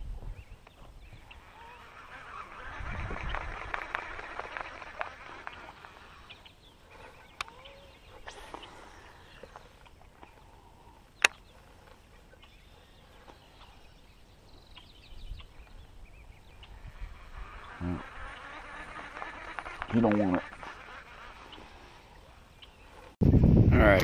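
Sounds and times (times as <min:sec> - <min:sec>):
bird chirps: 0:05.4 - 0:23.1
sharp click: 0:11.2 - 0:11.4.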